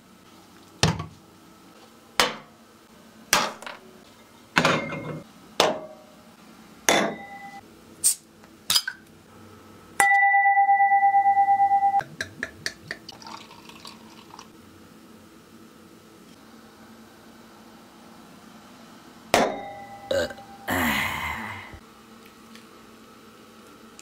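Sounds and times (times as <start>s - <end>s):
dishes set down on wooden table: 4.6s - 5.9s
beer fizzing into a glass: 13.1s - 14.6s
loud steady tone: 19.4s - 21.7s.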